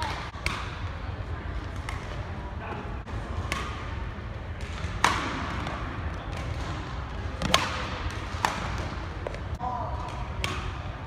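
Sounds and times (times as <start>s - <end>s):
rackets striking shuttlecock: 3.4s - 4.0s, 4.6s - 6.8s, 7.4s - 10.9s.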